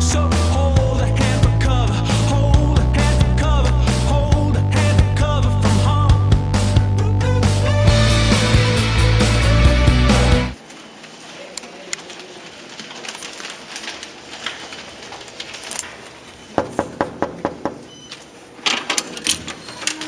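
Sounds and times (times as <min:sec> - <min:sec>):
knuckles knocking on door: 0:16.6 - 0:17.8.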